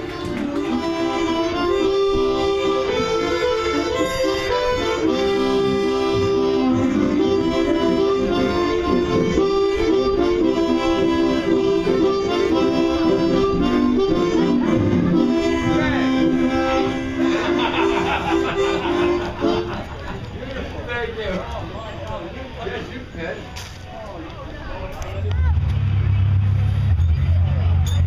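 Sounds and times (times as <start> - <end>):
harmonica ensemble playing: 0.0 - 20.0.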